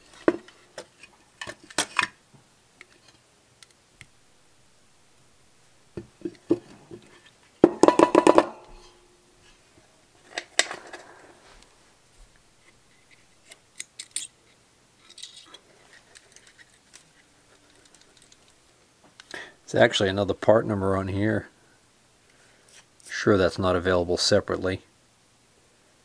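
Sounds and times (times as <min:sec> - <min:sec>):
small parts clicking: 0:13.1 - 0:14.3, 0:15.0 - 0:18.6
small metal parts clattering: 0:15.0 - 0:17.0.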